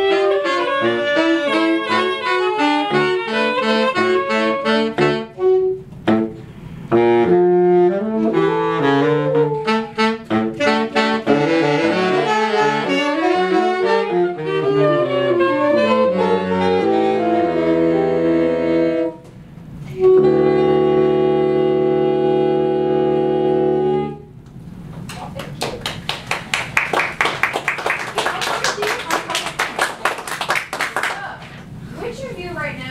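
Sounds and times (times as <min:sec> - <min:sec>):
out of tune soprano saxophone: 0:00.0 - 0:24.4
saxophone ensemble playing: 0:00.0 - 0:24.4.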